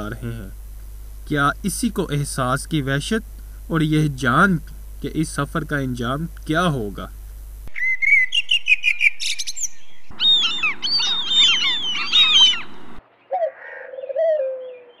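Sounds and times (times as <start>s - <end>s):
high bird chirps: 7.7s - 15.0s
lower falling bird call: 7.7s - 15.0s
chorus of birds chirping: 7.8s - 15.0s.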